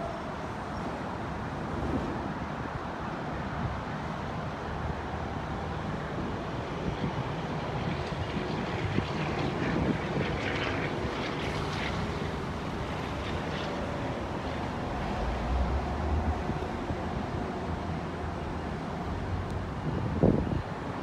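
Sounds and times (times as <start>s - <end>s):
wind buffeting microphone: 6.1s - 18.1s, 19.1s - 21.0s.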